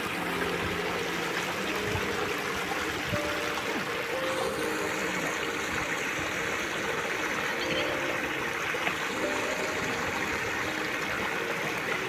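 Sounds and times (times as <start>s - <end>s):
stream rushing over stones: 0.0s - 12.0s.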